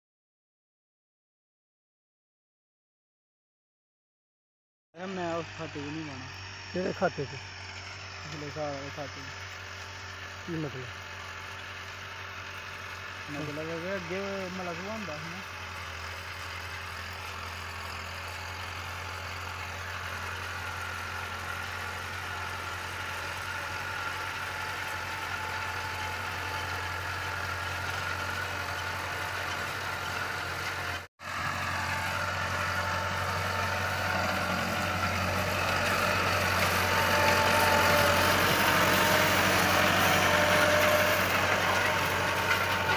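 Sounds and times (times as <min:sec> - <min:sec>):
tractor diesel engine running: 0:05.0 - 0:42.9.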